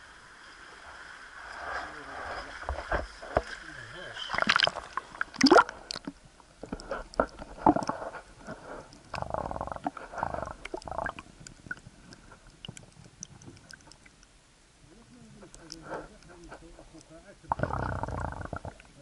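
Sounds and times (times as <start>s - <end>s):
muffled underwater water rushing: 0.0s - 19.0s.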